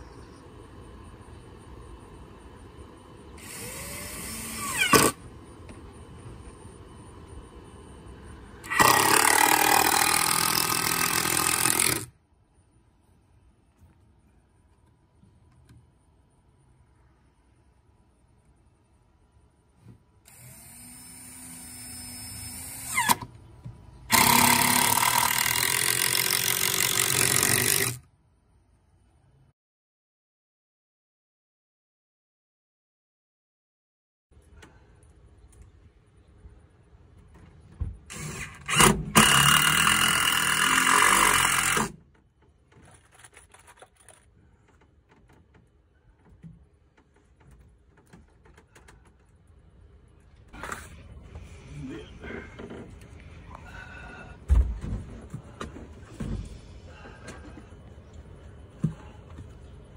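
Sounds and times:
cordless drill into wood: 0:03.4 - 0:05.2, 0:08.6 - 0:12.1, 0:20.3 - 0:23.3, 0:24.1 - 0:28.0, 0:38.1 - 0:42.0.

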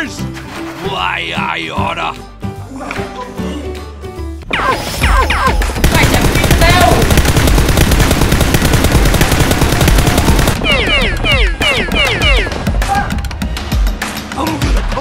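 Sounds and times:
rapid machine-gun fire: 0:05.8 - 0:12.6.

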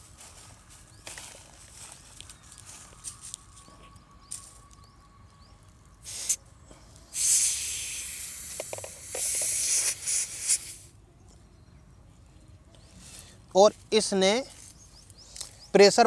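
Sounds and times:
air hissing from tyre valve: 0:06.0 - 0:06.4, 0:07.1 - 0:10.9
hose chuck threading onto valve: 0:08.1 - 0:10.6.

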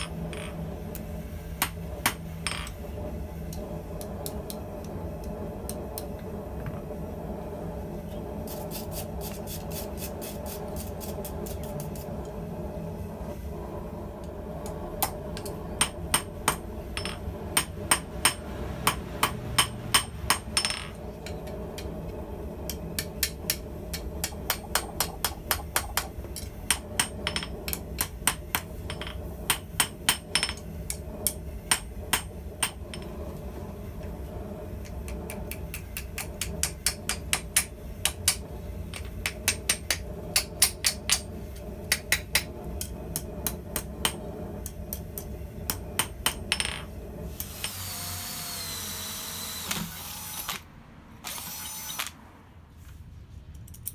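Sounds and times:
hammer striking steel on anvil: 0:15.0 - 0:21.9, 0:22.7 - 0:33.1, 0:35.5 - 0:46.9.

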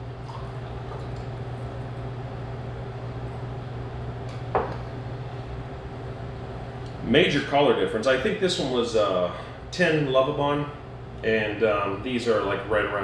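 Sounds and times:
low room hum: 0:00.0 - 0:13.0
liquid pouring into glass: 0:00.1 - 0:02.2.

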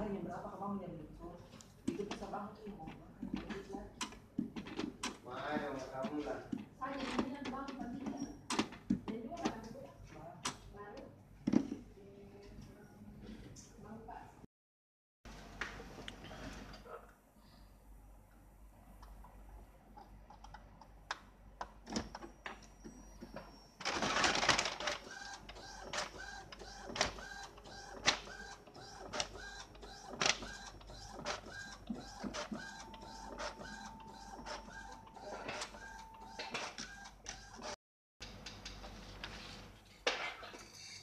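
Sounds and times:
print carriage whining and clicking: 0:21.9 - 0:37.8
printer paper feed: 0:23.8 - 0:37.8.

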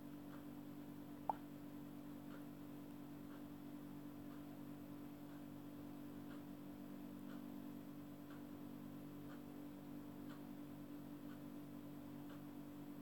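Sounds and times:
low steady hum: 0:00.0 - 0:13.0
faint soft ticks: 0:07.2 - 0:07.5, 0:08.2 - 0:09.5, 0:10.2 - 0:12.8.

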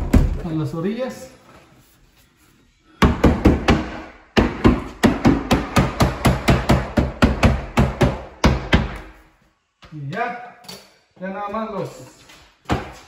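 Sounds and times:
nails hammered into wood: 0:03.0 - 0:09.1.

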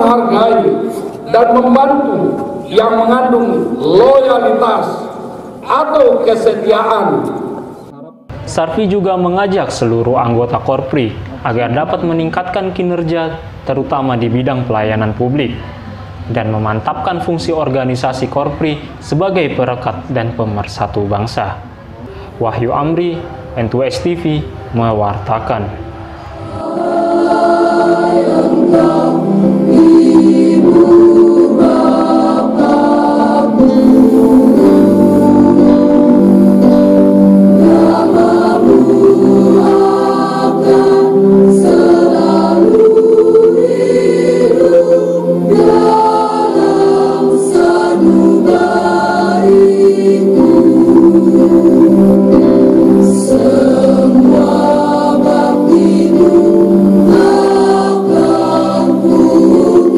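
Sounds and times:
choir singing: 0:00.0 - 0:05.7, 0:25.4 - 0:59.9.

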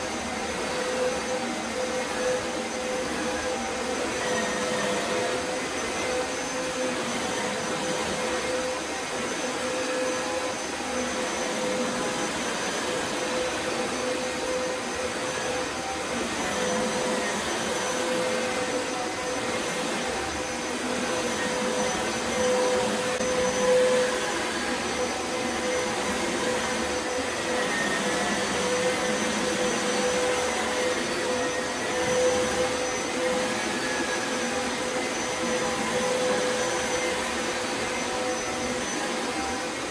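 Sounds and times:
carpet shampooer suction motor: 0:00.0 - 0:39.9.

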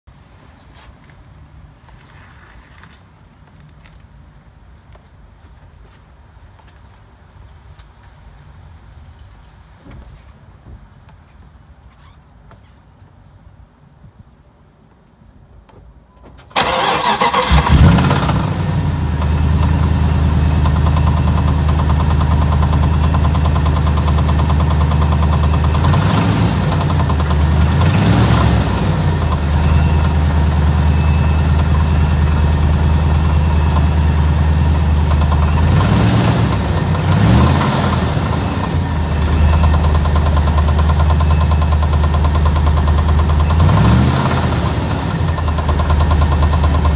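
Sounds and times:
vehicle engine starting and idling: 0:16.4 - 0:46.9
engine knocking: 0:20.4 - 0:28.5, 0:34.9 - 0:46.9.

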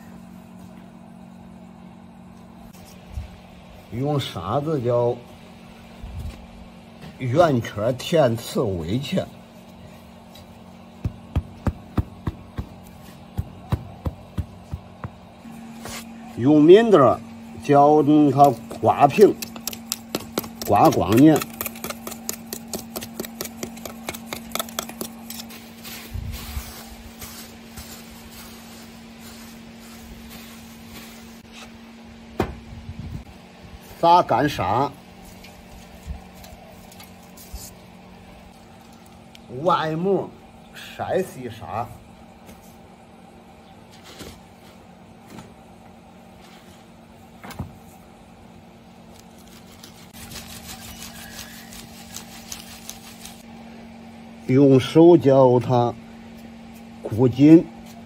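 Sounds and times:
steady low hum: 0:00.0 - 0:58.0
trowel scraping and tapping sand: 0:18.4 - 0:26.0
sand rustling: 0:25.4 - 0:31.7
dull thump: 0:32.3 - 0:32.7.

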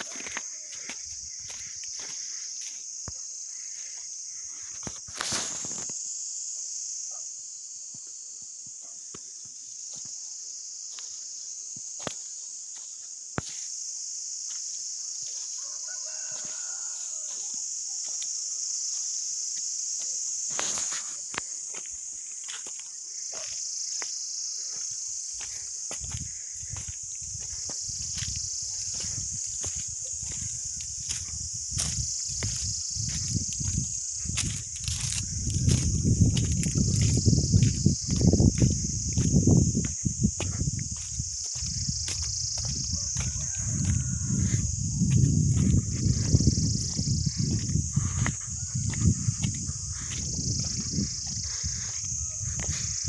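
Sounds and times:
high-pitched insect chorus: 0:00.0 - 0:53.0
distant rooster crowing: 0:15.4 - 0:17.7, 0:42.7 - 0:46.8, 0:47.4 - 0:50.2, 0:52.0 - 0:53.0.

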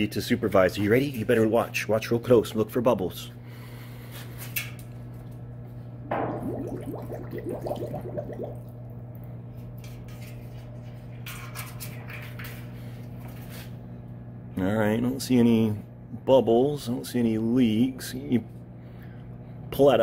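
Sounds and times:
low hum: 0:05.8 - 0:09.5
water sloshing in metal tank: 0:06.1 - 0:08.8.

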